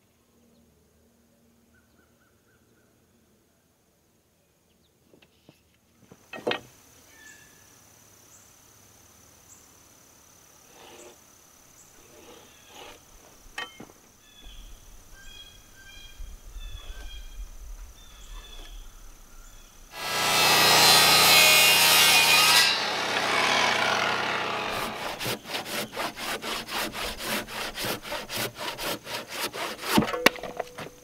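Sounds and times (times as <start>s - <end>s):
hand tools tapping on wood: 29.4s - 31.0s.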